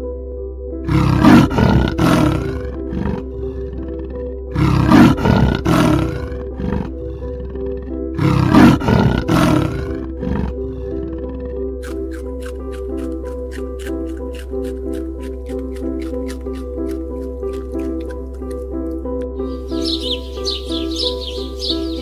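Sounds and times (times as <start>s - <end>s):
background music: 0.0s - 22.0s
big cat roaring: 0.8s - 11.7s.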